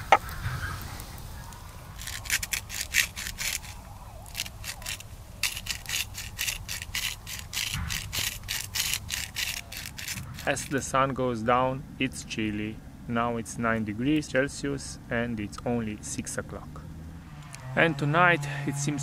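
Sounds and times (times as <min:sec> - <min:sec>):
spice grinder crunching: 0:02.0 - 0:10.8.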